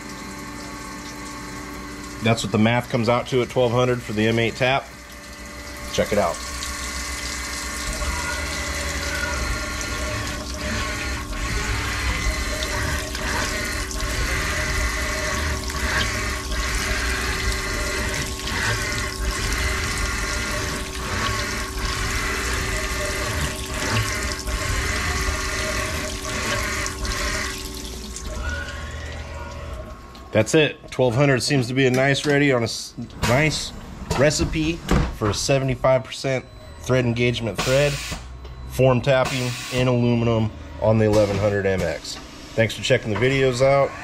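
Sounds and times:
coolant splashing: 0.0 - 33.7
milling machine spindle running: 0.0 - 34.8.

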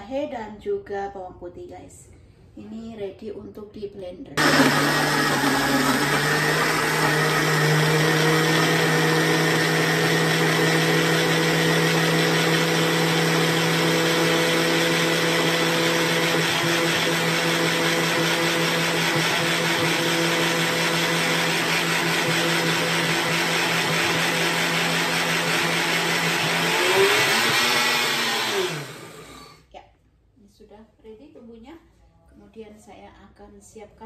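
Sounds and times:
blender motor running: 4.4 - 29.7.

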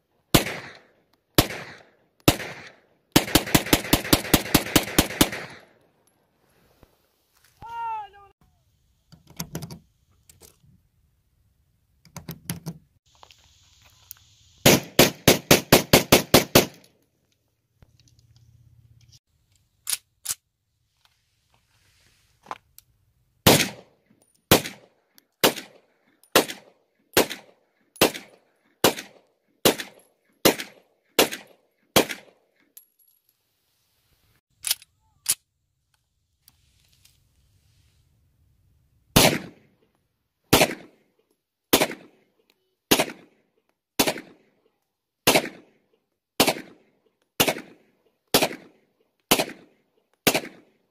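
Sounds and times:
pistol shots: 0.3 - 5.7, 14.6 - 16.8, 23.5 - 23.9, 24.5 - 32.4, 39.2 - 39.6, 40.5 - 41.0, 41.7 - 42.2, 42.9 - 43.4, 44.0 - 44.5, 45.2 - 45.8, 46.4 - 46.8, 47.4 - 50.8
metallic clicks of gun handling: 16.8 - 20.4, 34.6 - 36.0.

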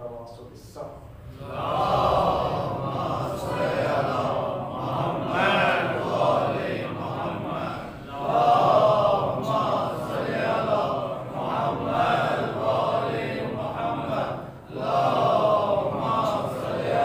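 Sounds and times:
man chanting: 0.0 - 17.0.

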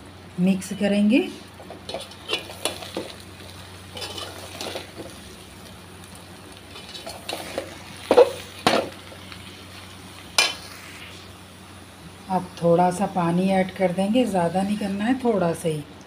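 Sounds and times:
light sizzle: 0.0 - 16.0
metal spoon scraping a pot: 3.9 - 5.0.

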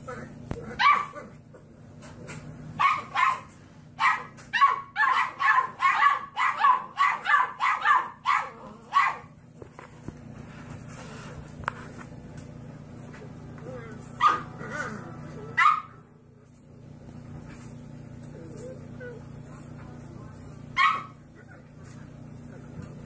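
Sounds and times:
puppy barking: 0.6 - 1.4, 2.8 - 9.3, 14.1 - 14.9, 15.5 - 16.1, 20.7 - 21.2.

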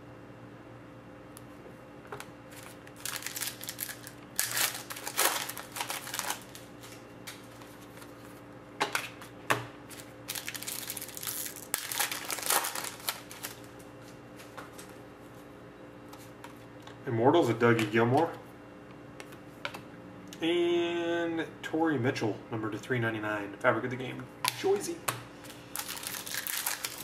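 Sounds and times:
foil wrapper crinkling: 2.5 - 8.3, 9.9 - 13.9, 25.5 - 27.0.

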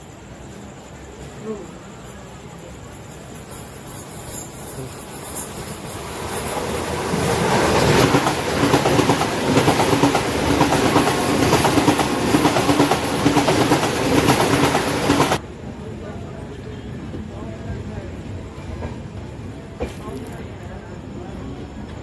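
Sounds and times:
train wheels clattering: 0.0 - 15.4
train rushing past: 0.0 - 20.1
steady train hum: 0.0 - 22.0.

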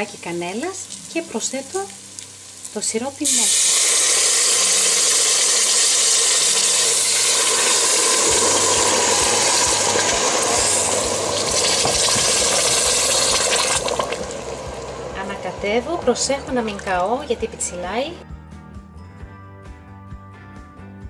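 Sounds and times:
syrup sizzling in hot oil: 0.0 - 15.2.

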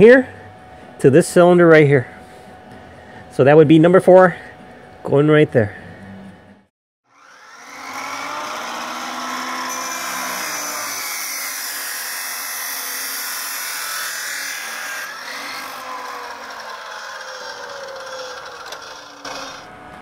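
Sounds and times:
chop saw cutting steel: 7.1 - 19.8
motor winding down: 7.1 - 19.8.

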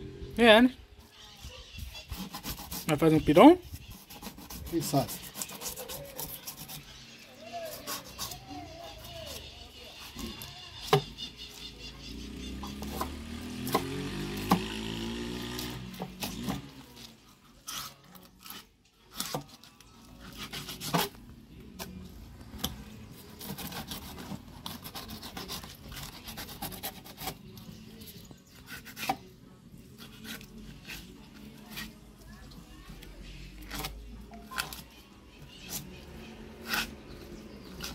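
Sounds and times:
knife scraping fish: 1.9 - 3.0, 3.7 - 7.0, 7.6 - 11.5, 17.4 - 21.2, 28.6 - 29.2, 30.0 - 32.0, 35.6 - 37.9.

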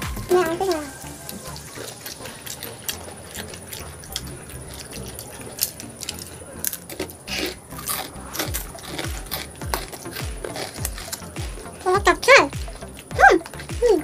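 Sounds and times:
chewing and lip-smacking: 0.0 - 14.0
short breaths: 7.2 - 7.7.

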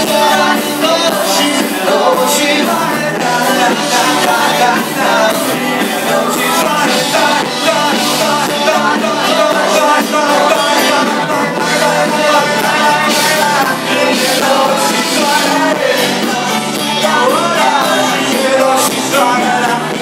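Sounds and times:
drums: 0.0 - 20.0
live pop-rock band: 0.0 - 20.0
people singing: 0.0 - 20.0.

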